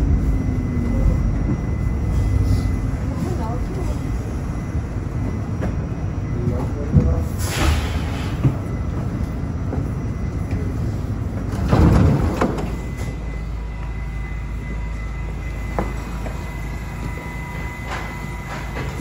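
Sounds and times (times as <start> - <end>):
subway car low rumble: 0.0 - 19.0
subway doors opening burst: 0.0 - 19.0.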